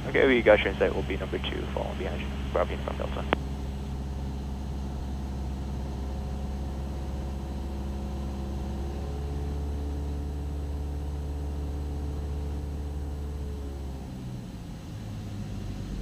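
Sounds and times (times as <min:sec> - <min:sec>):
aircraft engine and propeller droning: 0:00.0 - 0:16.0.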